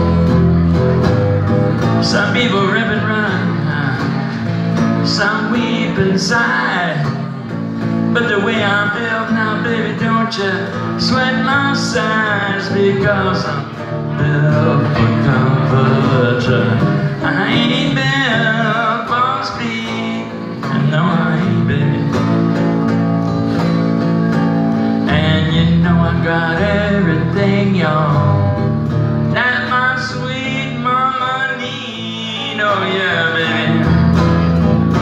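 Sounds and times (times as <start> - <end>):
electric guitar blues lead: 0.0 - 35.0.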